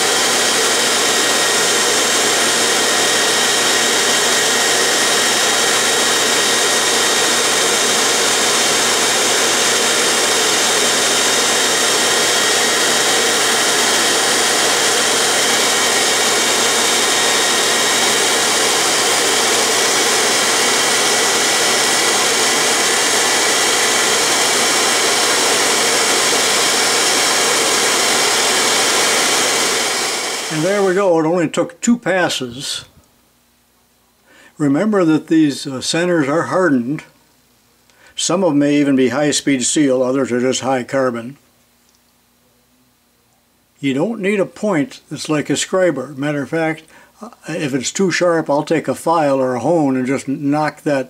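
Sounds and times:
toolpost grinder running at high speed: 0.0s - 31.1s.

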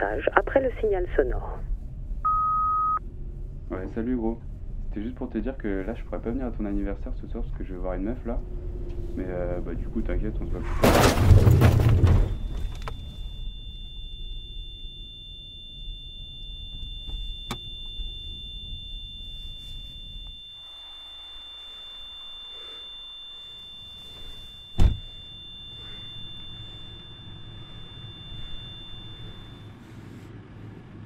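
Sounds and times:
low car rumble: 1.7s - 20.5s, 23.6s - 31.0s
high-pitched ringing tone: 2.2s - 4.1s, 11.9s - 29.9s
sharp thump: 24.8s - 25.1s.

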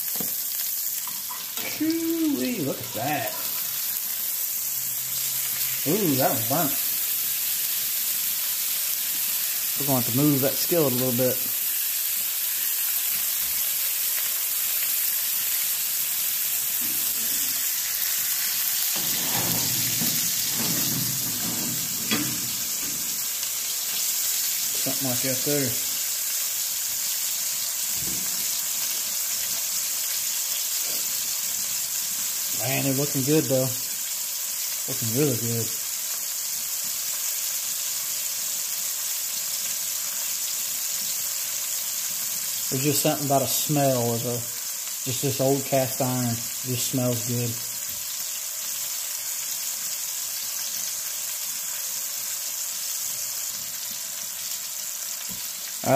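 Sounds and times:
steaks sizzling in oil: 0.0s - 55.9s
skillet scraping across cooktop: 16.8s - 23.6s.

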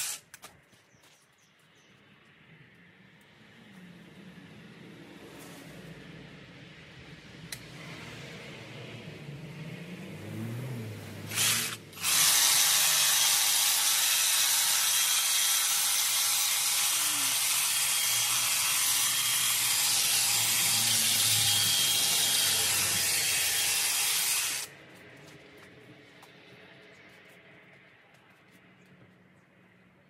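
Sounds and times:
hedge trimmer cutting: 0.0s - 0.2s, 11.3s - 24.7s.

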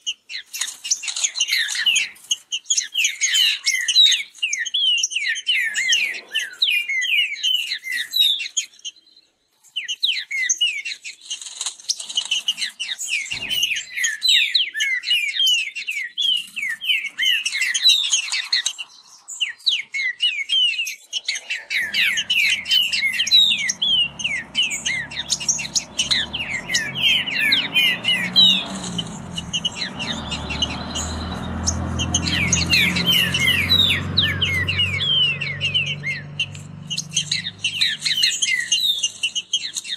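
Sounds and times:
birds singing whistled notes: 0.0s - 39.9s
low steady rumble: 21.8s - 38.2s.

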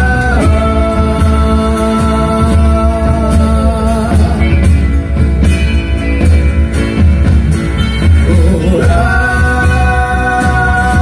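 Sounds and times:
bass guitar: 0.0s - 11.0s
drums: 0.0s - 11.0s
electric and acoustic guitars: 0.0s - 11.0s.

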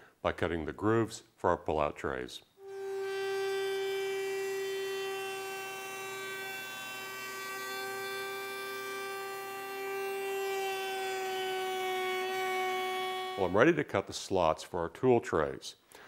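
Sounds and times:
router whining while trimming: 2.6s - 13.6s.

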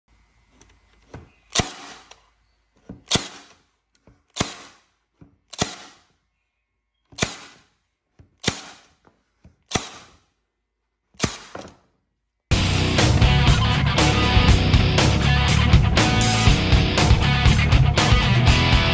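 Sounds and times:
stapler firing into wood: 1.2s - 2.2s, 2.9s - 6.2s, 7.1s - 10.4s, 11.1s - 11.9s.

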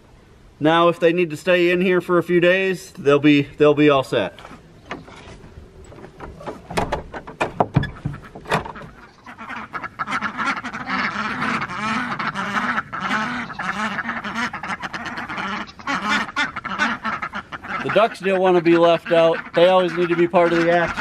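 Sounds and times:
ducks quacking: 6.0s - 21.0s
wooden door knocking shut: 6.2s - 8.9s.

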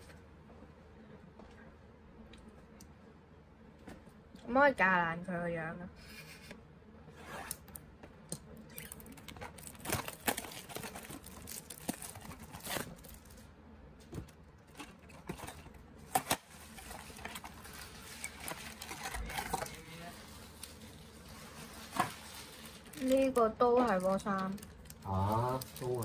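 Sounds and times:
wrapper and cards rustling: 8.8s - 13.5s, 14.7s - 26.0s.

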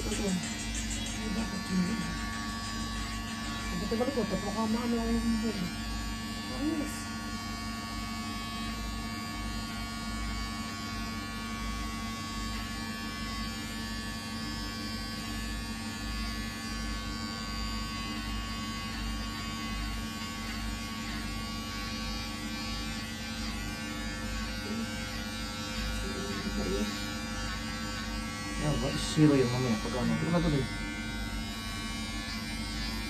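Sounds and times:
electric hair clippers buzzing: 0.0s - 33.0s.

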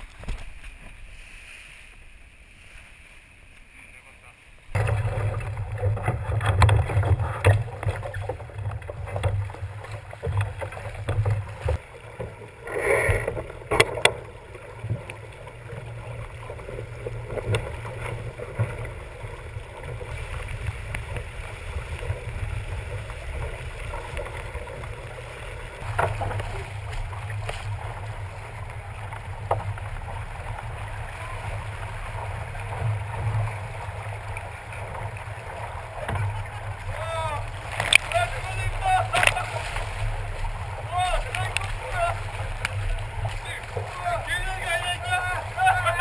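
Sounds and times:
water slapping against hull: 4.7s - 46.0s.

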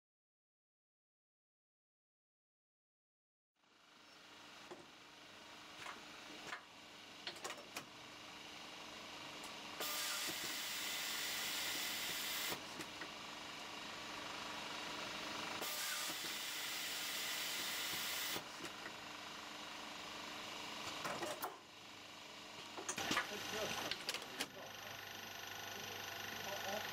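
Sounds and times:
steady machine hum: 8.0s - 26.9s
machine hissing: 9.8s - 12.6s, 15.6s - 18.4s, 23.0s - 25.0s
mechanical clicks and clacks: 22.8s - 24.7s.

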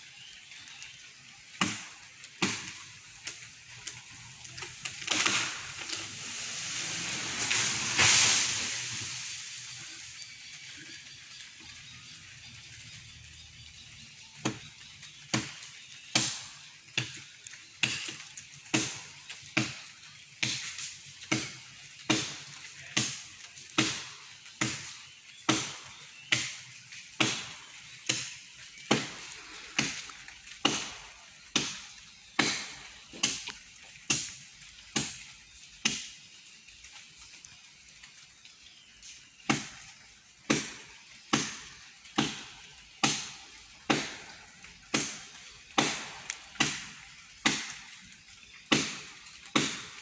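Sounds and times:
blade chopping wood: 1.6s - 2.8s, 15.3s - 17.2s, 20.4s - 26.6s, 27.2s - 33.5s, 40.5s - 47.8s, 48.7s - 50.0s.

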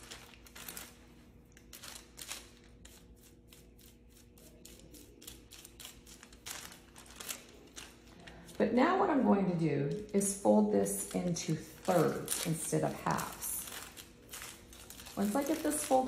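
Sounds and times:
foil crinkling: 0.0s - 3.1s, 4.6s - 8.6s, 9.9s - 16.0s
brush stroking hair: 2.8s - 6.4s.

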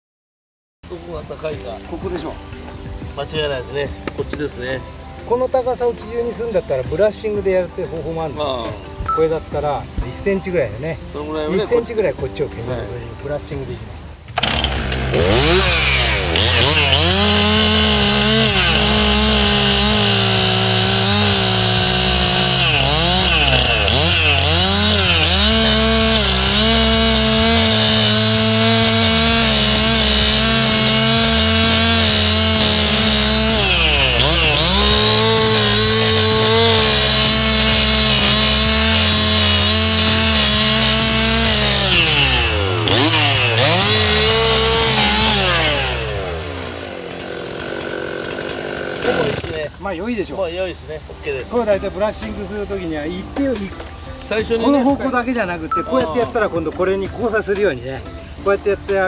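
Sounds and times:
chainsaw cutting wood: 1.5s - 7.6s, 14.3s - 49.8s.

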